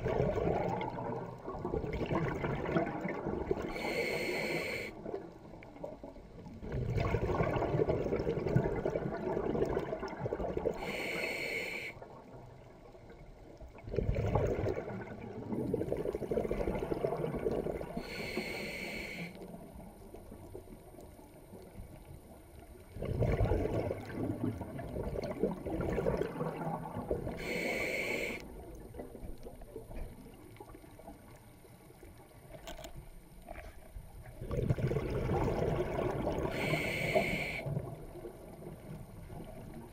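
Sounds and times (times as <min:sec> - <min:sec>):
diver exhaling bubbles: 0:00.0 - 0:05.2, 0:06.6 - 0:11.1, 0:13.8 - 0:19.3, 0:23.0 - 0:28.4, 0:34.4 - 0:38.0
regulator breaths: 0:03.7 - 0:05.0, 0:10.8 - 0:12.0, 0:18.0 - 0:19.4, 0:36.5 - 0:37.7.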